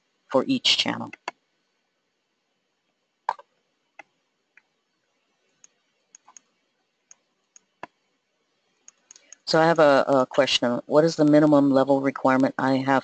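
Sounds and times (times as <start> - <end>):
computer keyboard and mouse clicks: 3.3 - 4.7, 5.5 - 6.5, 8.8 - 9.5.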